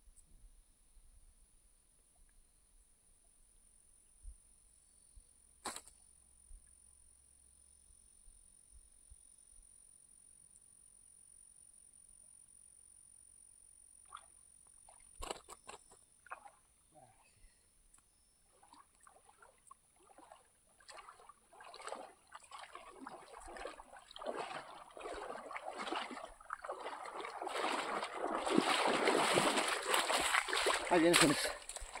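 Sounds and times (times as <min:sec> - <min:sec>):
water splashing and dripping: 0:18.5 - 0:32.0.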